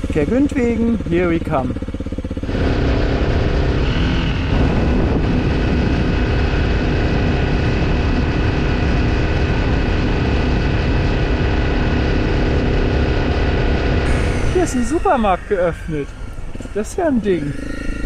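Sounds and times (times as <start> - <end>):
motorcycle engine running: 0.0 - 18.0
wind noise on microphone: 2.5 - 15.1.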